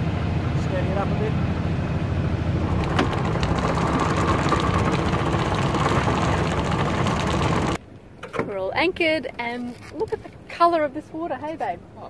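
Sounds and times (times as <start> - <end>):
boat engine rumbling: 1.9 - 7.8.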